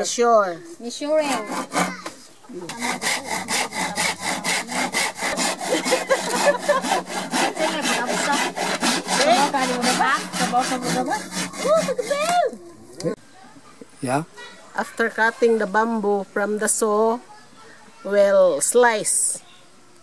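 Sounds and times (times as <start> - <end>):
hand saw cutting bamboo: 1.2 - 12.4.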